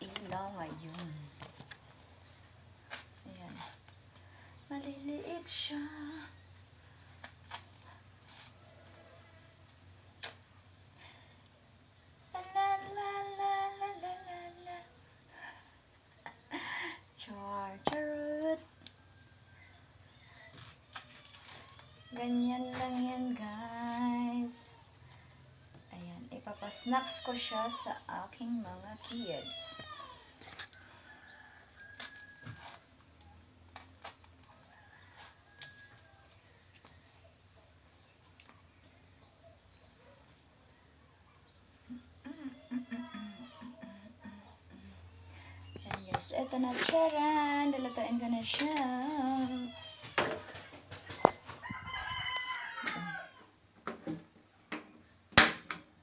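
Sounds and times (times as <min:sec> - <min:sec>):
low steady hum: 0:00.0 - 0:31.7
rooster crowing: 0:34.6 - 0:36.8, 0:51.2 - 0:53.5.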